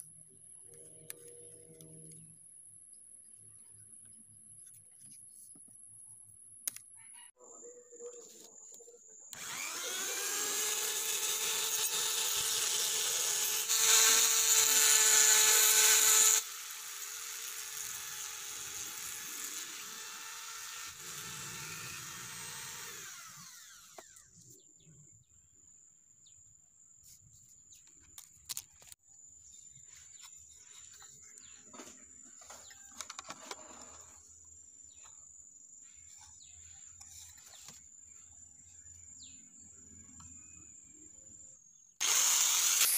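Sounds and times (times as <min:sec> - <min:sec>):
grinder cutting metal: 0:09.4 - 0:24.2, 0:42.0 - 0:42.9.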